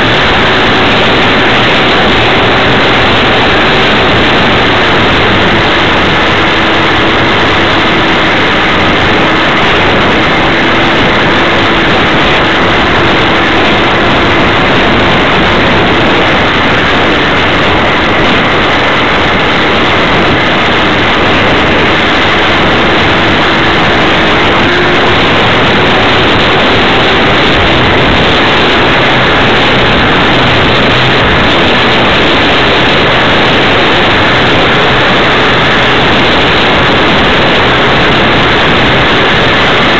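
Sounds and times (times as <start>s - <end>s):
loud wind rush: 0.0s - 39.9s
model plane motor and propeller: 0.0s - 39.9s.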